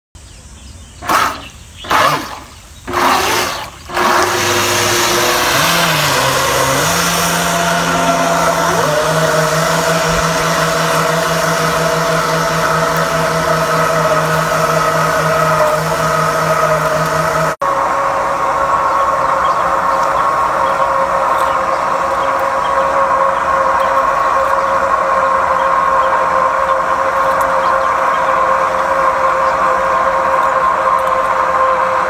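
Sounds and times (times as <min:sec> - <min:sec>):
short rushing bursts: 0:01.0 - 0:17.5
small electric motor whining: 0:01.0 - 0:32.0
water churning: 0:01.0 - 0:32.0.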